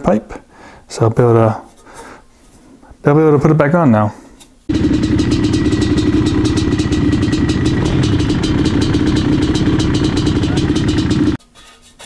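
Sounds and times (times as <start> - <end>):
dirt bike engine idling: 4.7 - 11.4.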